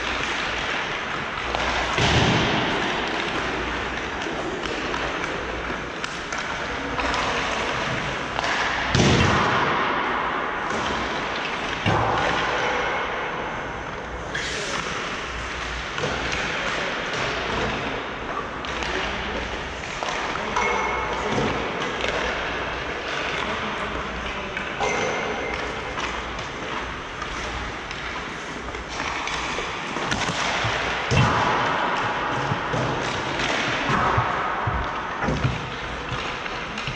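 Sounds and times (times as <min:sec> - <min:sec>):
heavy thuds in a rink: 0:00.0 - 0:13.3, 0:24.8 - 0:36.9.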